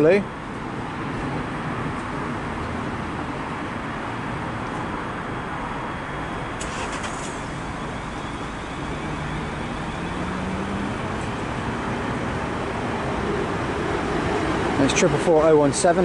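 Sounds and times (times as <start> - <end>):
traction motor whine: 6.2 - 15.1
train wheels rumbling on rail: 6.4 - 16.0.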